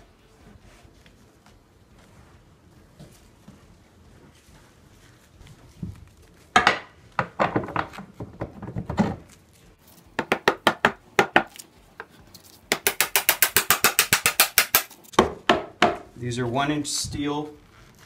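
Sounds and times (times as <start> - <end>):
wood block knocking and rubbing: 6.5 - 9.2.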